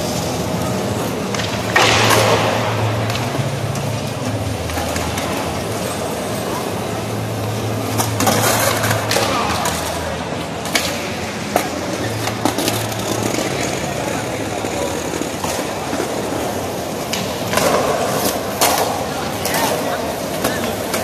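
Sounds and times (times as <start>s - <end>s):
people chattering: 0.0s - 21.0s
skateboard clacks: 0.0s - 21.0s
skateboard wheels rolling: 0.0s - 21.0s.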